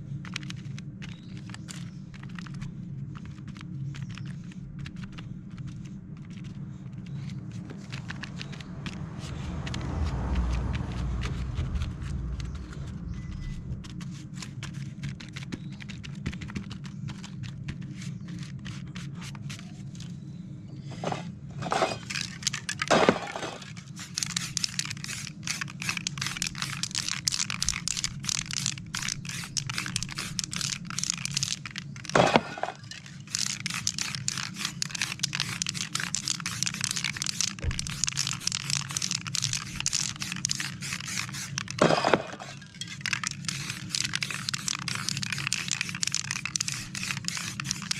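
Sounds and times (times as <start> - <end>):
paper crackling: 21.0 - 47.9
spray paint can hissing: 22.0 - 47.9.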